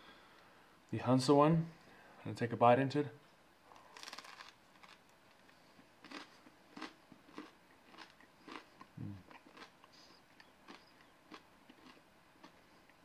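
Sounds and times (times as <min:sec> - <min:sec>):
bread being chewed: 0:03.8 - 0:13.0.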